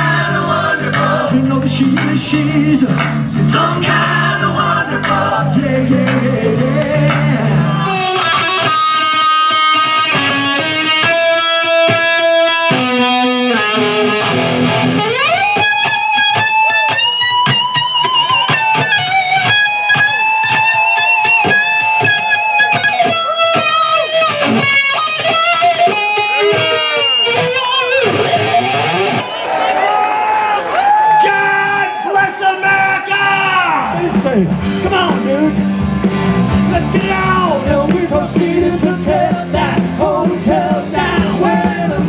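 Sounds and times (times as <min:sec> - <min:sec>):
drums: 0:00.0 - 0:42.0
electric guitar solo: 0:07.6 - 0:31.1.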